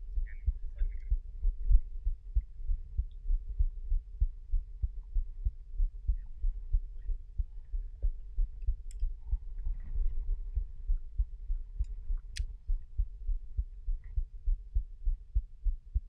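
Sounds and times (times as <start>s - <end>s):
faint steady hum: 0.0s - 16.0s
light clicks: 8.6s - 9.2s, 11.8s - 12.6s.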